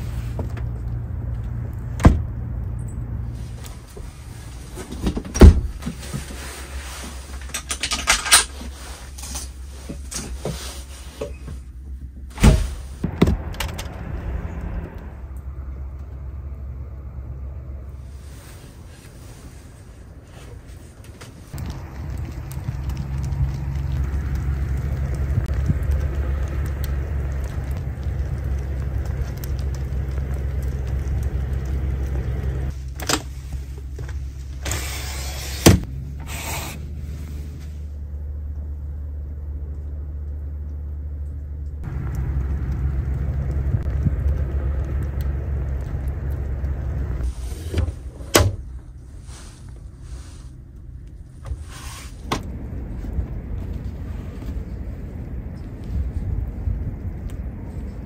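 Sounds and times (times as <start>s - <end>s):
knocks and scrapes: 0.0s - 14.7s, 45.7s - 50.6s, 51.2s - 56.7s
low rumble and hiss: 0.0s - 58.0s
window sliding shut: 34.6s - 37.8s, 51.4s - 52.5s.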